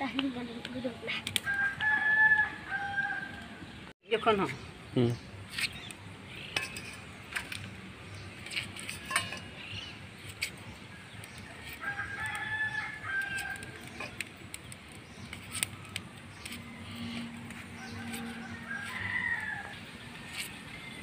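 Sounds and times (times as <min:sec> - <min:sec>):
rooster crowing: 0:01.4 - 0:03.6, 0:11.6 - 0:13.8, 0:17.8 - 0:19.9.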